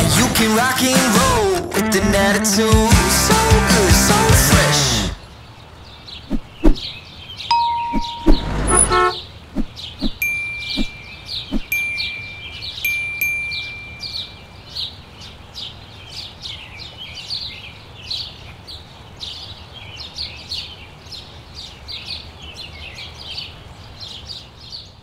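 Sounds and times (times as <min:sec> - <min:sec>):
birds chirping: 0:04.7 - 0:25.0
high whistle-like tone: 0:07.5 - 0:09.2.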